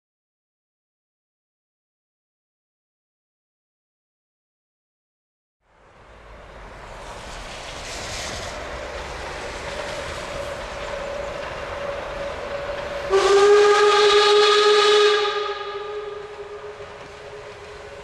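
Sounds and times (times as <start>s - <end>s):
steam train rumble and hiss: 5.8s - 18.0s
steam whistle blast: 12.4s - 18.0s.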